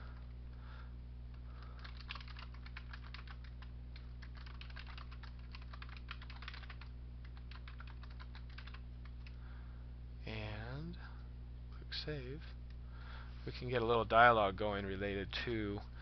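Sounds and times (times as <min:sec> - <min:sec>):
steady low hum: 0:00.0 - 0:16.0
keyboard typing: 0:01.6 - 0:09.4.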